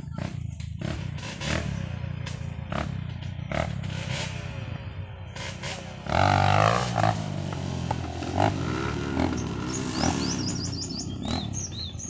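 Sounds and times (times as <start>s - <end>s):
high bird chirps: 9.2s - 12.0s.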